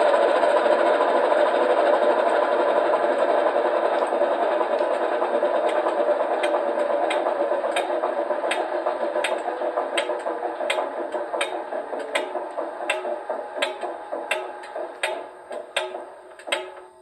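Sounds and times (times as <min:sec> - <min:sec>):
diesel locomotive engine idling: 0:00.0 - 0:17.0
sharp repeating click: 0:08.5 - 0:16.9.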